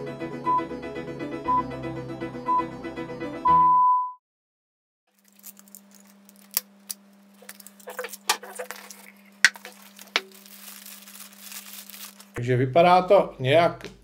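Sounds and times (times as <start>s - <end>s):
small rustles: 5.1s - 6.6s, 7.2s - 12.4s
low electrical hum: 5.1s - 14.0s.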